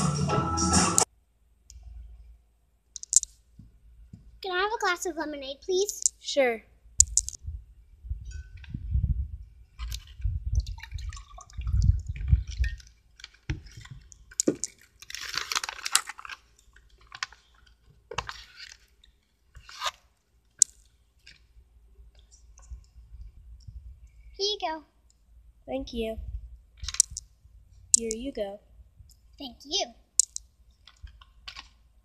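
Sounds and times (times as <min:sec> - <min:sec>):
fruit splashing into drink: 0:09.8 - 0:13.6
liquid pouring into a glass: 0:10.6 - 0:12.8
plastic bag crinkling: 0:12.7 - 0:19.8.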